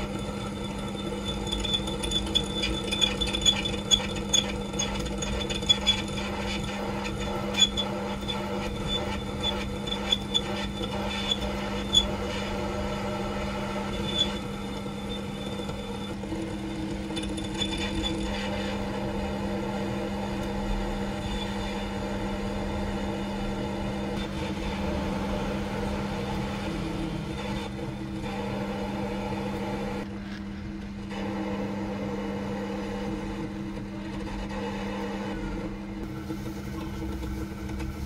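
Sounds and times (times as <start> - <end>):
tool cutting steel bar: 0.0 - 12.6
lathe motor hum: 0.0 - 38.0.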